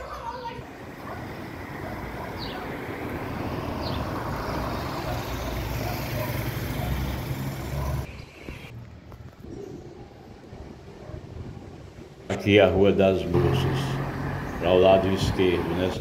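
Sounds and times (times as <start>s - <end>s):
vehicle passing close by: 0.8s - 8.1s, 13.3s - 16.0s.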